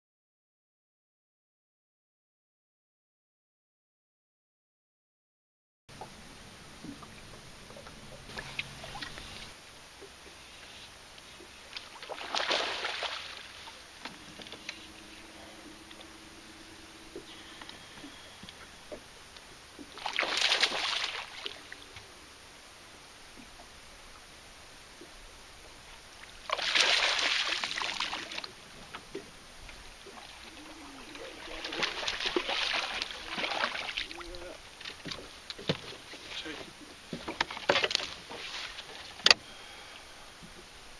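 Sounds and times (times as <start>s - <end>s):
low steady hum: 5.9s - 40.9s
water sloshing and lapping: 6.0s - 22.4s, 23.2s - 40.7s
fish splashing: 11.4s - 22.2s, 26.4s - 28.6s, 29.9s - 36.3s.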